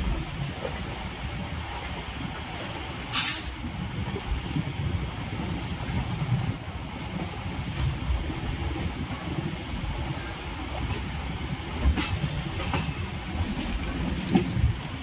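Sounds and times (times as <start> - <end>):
train rumbling: 0.0 - 15.0
loud hiss: 3.1 - 3.6.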